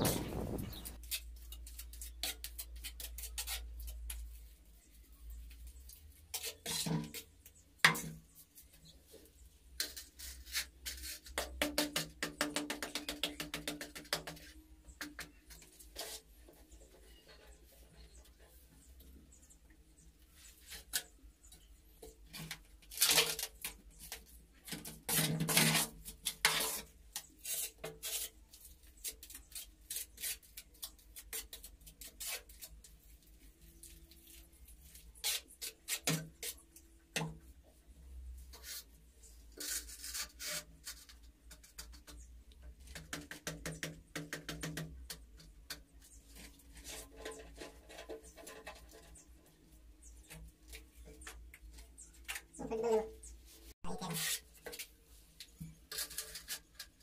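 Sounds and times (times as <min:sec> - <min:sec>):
tiles knocked into place: 0:00.0 - 0:01.0
trowel scraping mortar in metal pan: 0:00.0 - 0:04.3, 0:06.3 - 0:08.1, 0:22.4 - 0:32.9, 0:53.8 - 0:54.8, 0:55.6 - 0:57.0.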